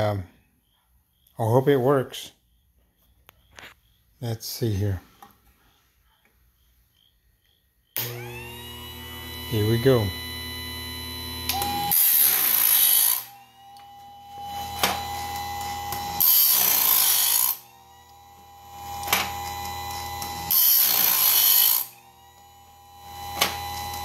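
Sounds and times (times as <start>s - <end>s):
grinding wheel whine: 7.9s - 24.0s
grinder grinding blade teeth: 8.0s - 24.0s.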